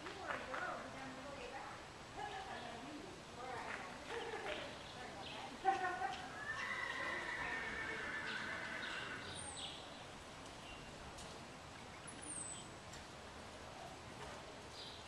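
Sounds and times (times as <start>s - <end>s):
bird chirping: 8.2s - 12.8s, 14.7s - 15.0s.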